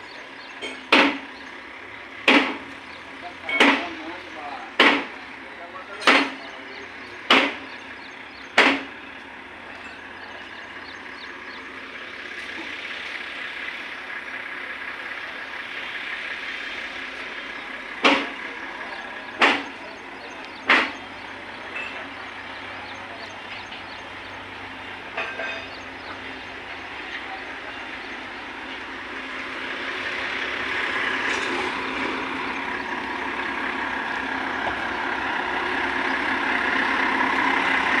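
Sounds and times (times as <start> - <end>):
sharp knocks: 0.8 - 1.2, 2.2 - 2.6, 4.8 - 5.1, 6.0 - 6.4, 7.3 - 7.7, 8.6 - 8.9, 19.4 - 19.7, 20.6 - 21.0.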